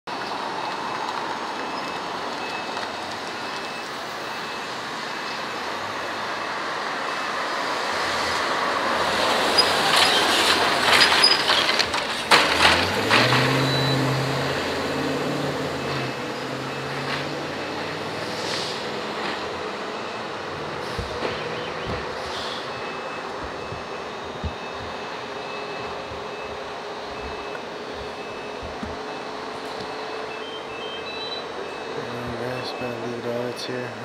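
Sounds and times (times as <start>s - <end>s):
low engine hum: 12.0s - 34.0s
vehicle passing close by: 12.3s - 25.0s.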